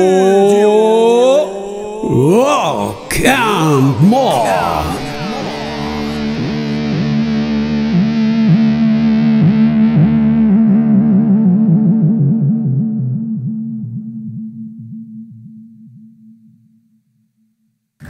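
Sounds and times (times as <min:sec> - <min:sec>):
distorted electric guitar note bending: 0:00.0 - 0:13.4.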